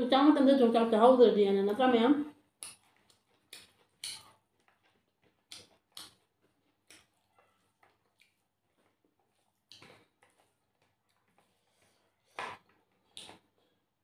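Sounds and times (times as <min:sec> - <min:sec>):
fingers squishing food: 0:02.5 - 0:11.4.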